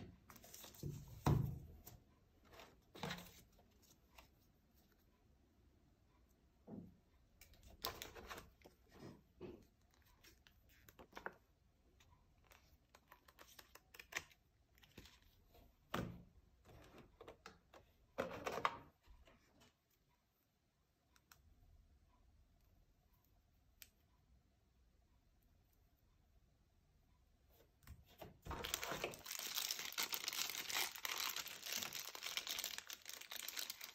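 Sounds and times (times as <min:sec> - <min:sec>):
packaging rustling: 0:28.5 - 0:33.9.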